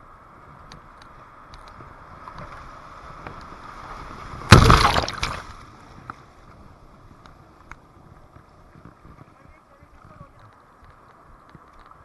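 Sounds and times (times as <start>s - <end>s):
loud splash of kayak: 4.4s - 5.6s.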